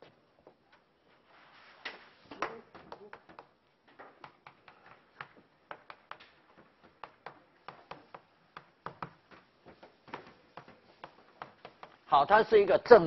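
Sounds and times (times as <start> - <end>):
chalk tapping and scraping on blackboard: 4.2 - 12.1.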